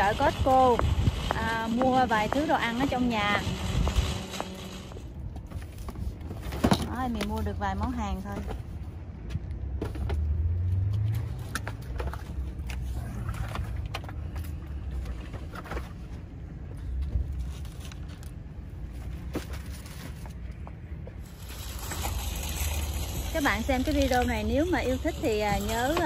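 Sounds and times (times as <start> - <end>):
steady low rumble: 0.0 - 6.5
boxes knocking and rustling: 5.4 - 7.4.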